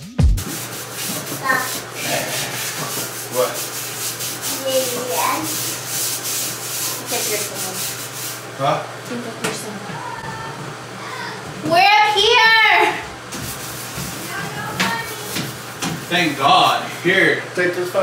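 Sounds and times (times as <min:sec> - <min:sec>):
toilet brush scrubbing bowl: 0:00.4 - 0:08.6, 0:12.8 - 0:17.4.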